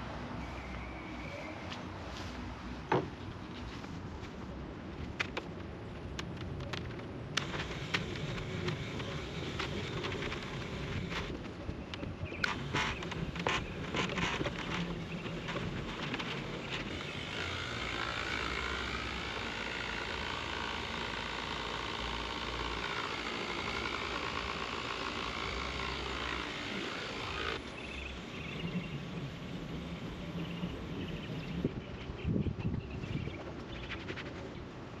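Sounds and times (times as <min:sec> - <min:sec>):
orbital polisher running: 0:15.9 - 0:27.6.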